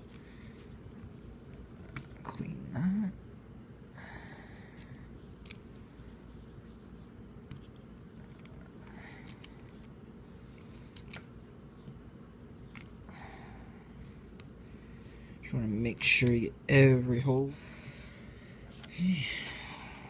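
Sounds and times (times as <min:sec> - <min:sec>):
cotton swab scratchy rubbing: 0:00.0 - 0:02.2, 0:05.2 - 0:07.2.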